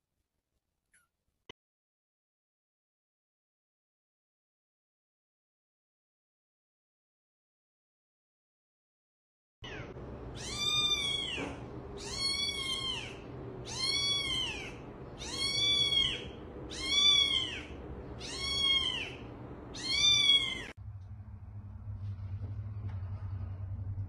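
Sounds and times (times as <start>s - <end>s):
kitten meowing: 9.6s - 20.8s.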